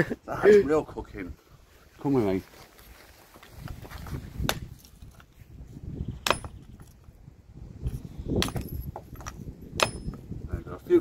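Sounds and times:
hatchet splitting wood: 0:04.4 - 0:04.9, 0:06.2 - 0:07.0, 0:08.3 - 0:10.2.

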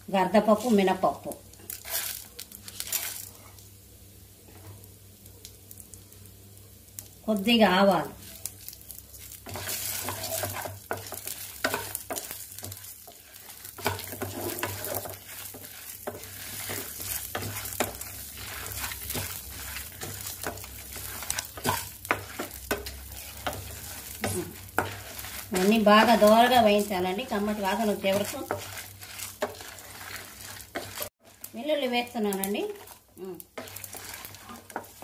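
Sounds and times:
lentils rattling and sizzling: 0:00.4 - 0:03.7, 0:06.9 - 0:35.0
spatula scraping metal pan: 0:09.4 - 0:31.4, 0:33.6 - 0:35.0.

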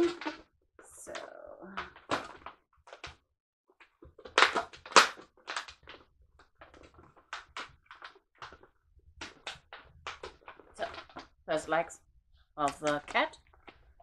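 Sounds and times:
balloons squeaking and rubbing: 0:00.0 - 0:00.4.

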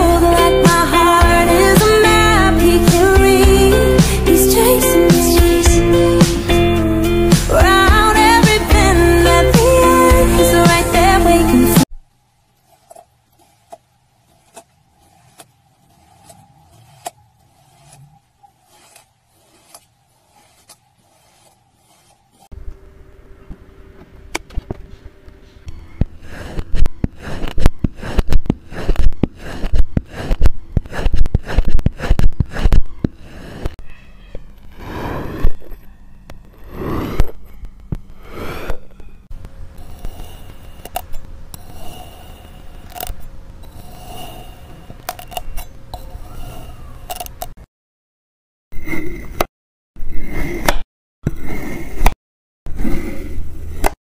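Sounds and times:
sand crunching under a blade: 0:12.7 - 0:22.5, 0:26.1 - 0:33.8, 0:34.7 - 0:35.8
low hum with held tone: 0:22.5 - 0:26.2, 0:37.3 - 0:47.5
knife slicing through sand: 0:26.3 - 0:33.8, 0:34.8 - 0:35.6, 0:48.8 - 0:54.0.

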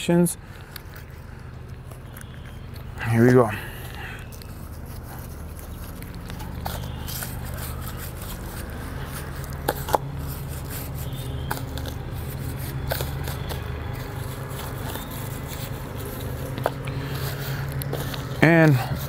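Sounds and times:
knife scraping: 0:04.2 - 0:19.0.

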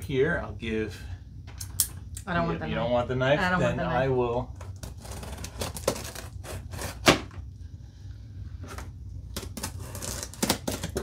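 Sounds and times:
knife scraping cardboard: 0:04.8 - 0:07.2, 0:09.4 - 0:11.0.

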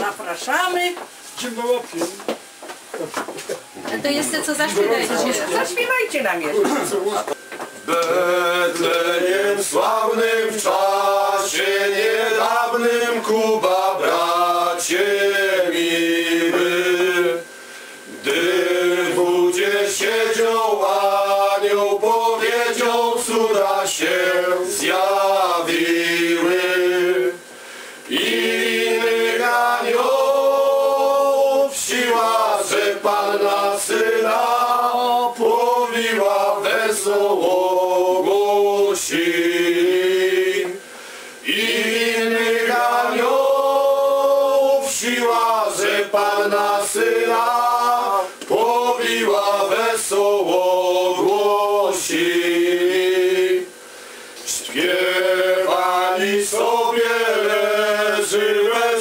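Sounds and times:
men singing a carol together: 0:06.6 - 0:59.0.

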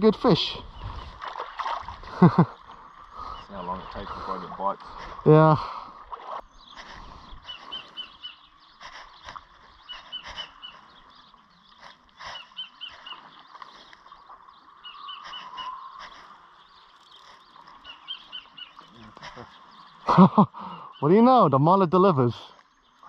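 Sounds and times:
bird chirping: 0:06.4 - 0:23.0.

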